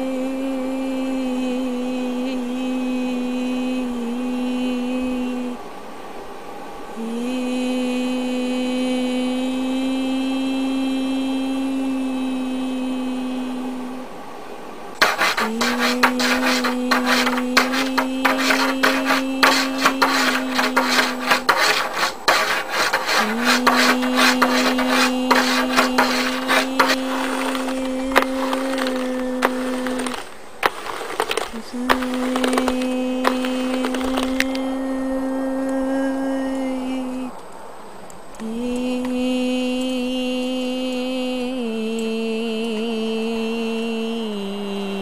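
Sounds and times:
hand rubbing and tapping objects: 15.0s - 34.6s.

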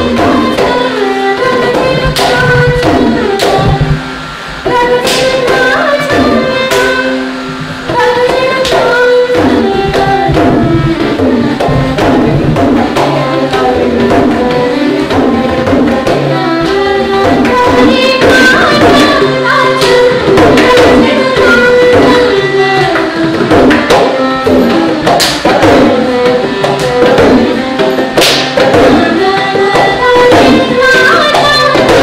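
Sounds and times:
person singing: 0.0s - 32.0s
rapid hand drumming: 0.0s - 32.0s
violin melody: 0.0s - 32.0s.

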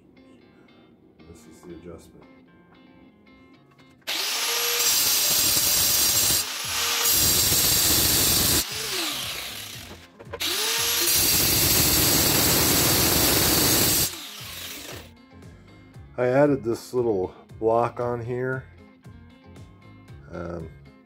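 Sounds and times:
angle grinder cutting steel: 4.1s - 15.1s.

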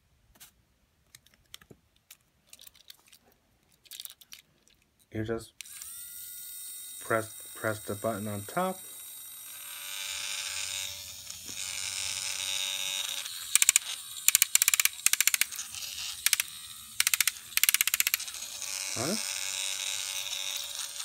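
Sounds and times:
toy electric motor whirring: 5.6s - 21.0s
rapid clicking: 13.6s - 15.5s, 16.2s - 18.2s.

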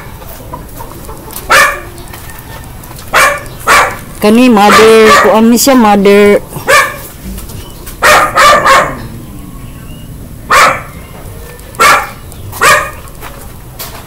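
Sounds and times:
dog barking: 1.5s - 1.9s, 3.1s - 4.0s, 4.6s - 5.4s, 6.6s - 7.1s, 8.0s - 9.1s, 10.5s - 11.0s, 11.8s - 13.1s.

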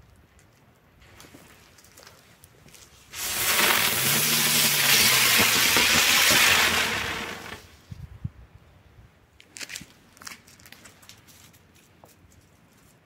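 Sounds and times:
faint crackles: 0.0s - 7.7s
firework hissing: 3.1s - 7.7s.

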